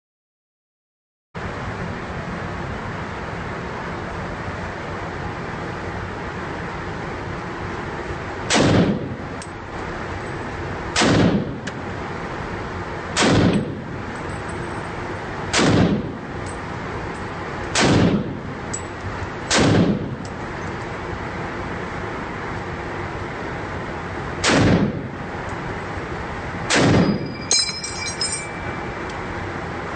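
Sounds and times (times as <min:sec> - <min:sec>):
rifle shots with echo: 0:08.5 - 0:09.0, 0:11.0 - 0:11.5, 0:13.2 - 0:13.7, 0:15.5 - 0:16.1, 0:17.8 - 0:18.3, 0:19.5 - 0:20.1, 0:24.4 - 0:25.0, 0:26.7 - 0:27.2.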